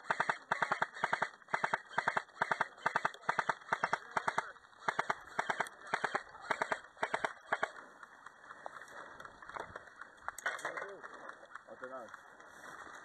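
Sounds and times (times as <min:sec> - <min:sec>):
footsteps through dry grass: 0:07.8 - 0:13.0.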